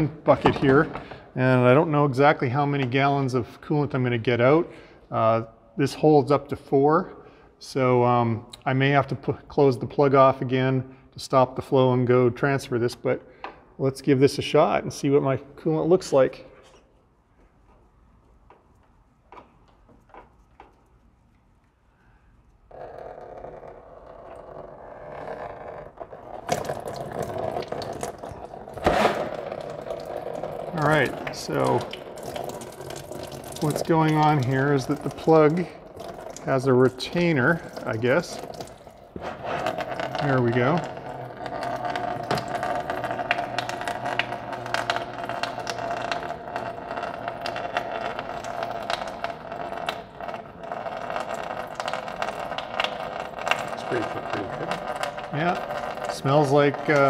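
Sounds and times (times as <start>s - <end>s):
coolant splashing into bucket: 25.2s - 57.0s.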